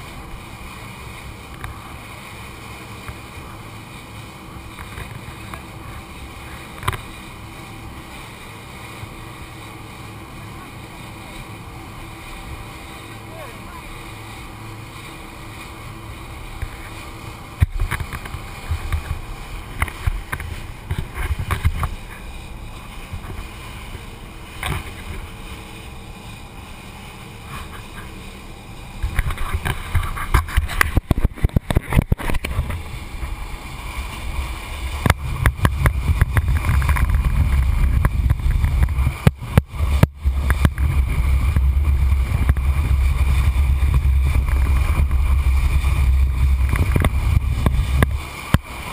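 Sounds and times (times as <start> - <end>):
muffled rumble of wind water and motor: 0.0 - 48.9
boat hull knocks and thuds: 16.6 - 22.2.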